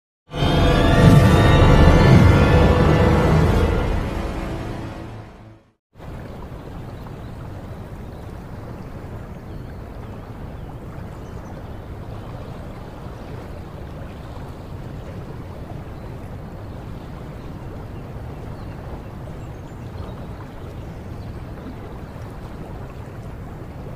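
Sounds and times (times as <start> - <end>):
waterfall rushing: 0.4 - 5.3.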